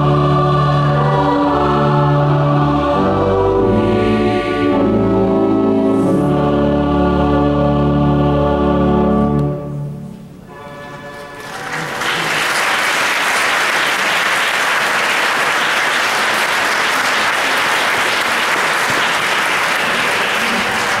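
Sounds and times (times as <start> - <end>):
choir singing closing chord: 0.0 - 12.6
audience applauding: 11.1 - 21.0.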